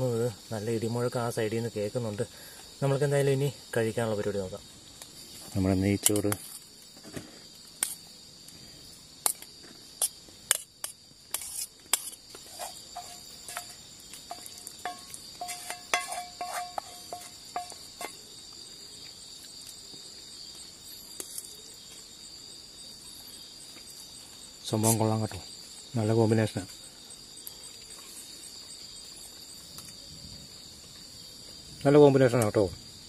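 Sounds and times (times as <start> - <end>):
insects chirping: 0.0 - 33.0
cookware clinking on steel: 14.3 - 17.8
short metallic rings: 14.3 - 17.8.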